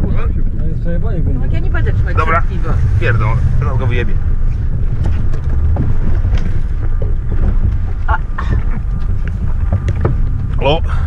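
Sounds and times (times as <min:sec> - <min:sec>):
vehicle engine rumble: 0:00.0 - 0:11.0
mud knocking against vehicle body: 0:04.6 - 0:10.8.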